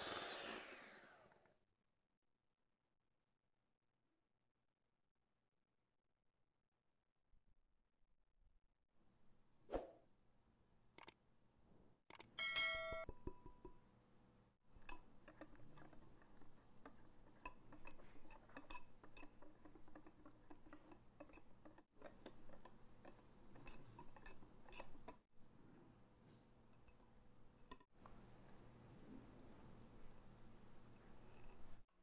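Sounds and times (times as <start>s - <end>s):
whisk clicking against glass bowl: 14.7s - 25.2s.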